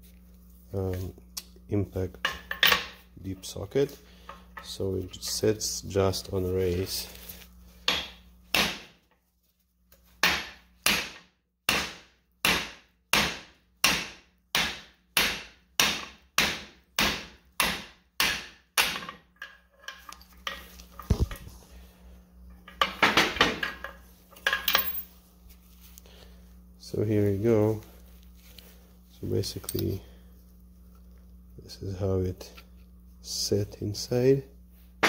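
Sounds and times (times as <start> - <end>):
metal clinks and clatter: 23.8 - 25.2, 29.4 - 30.0.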